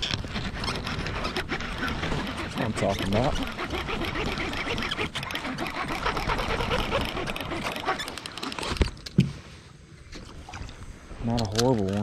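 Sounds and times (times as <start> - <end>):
fishing reel cranking: 0.0 - 8.8.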